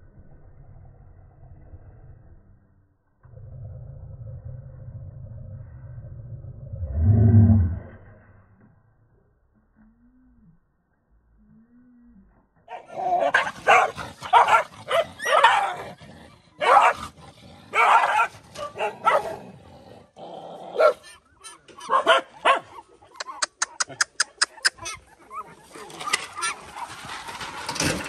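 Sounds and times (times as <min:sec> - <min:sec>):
dogs barking: 0:12.7 - 0:15.9, 0:16.6 - 0:19.4, 0:20.7 - 0:27.1.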